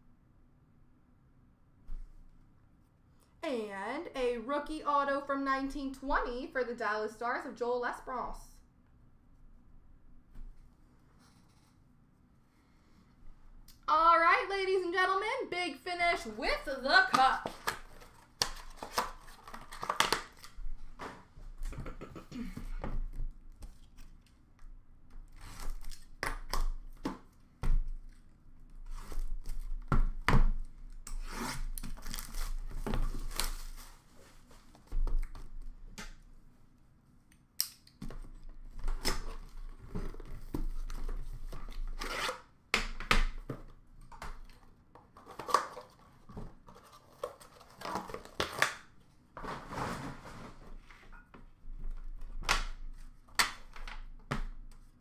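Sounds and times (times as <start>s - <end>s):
wrapper and cardboard tearing: 16.9s - 20.6s, 31.1s - 34.1s.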